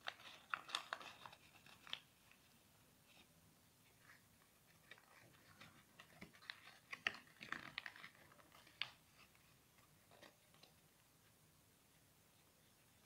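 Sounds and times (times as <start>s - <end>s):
paper being folded: 0.0s - 3.3s, 3.9s - 10.8s.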